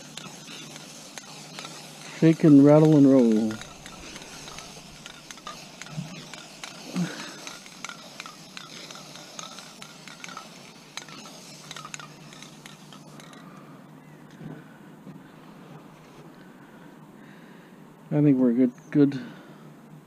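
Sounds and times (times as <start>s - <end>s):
can clicking and rattling: 0.0s - 13.6s
spray paint can hissing: 0.0s - 13.6s.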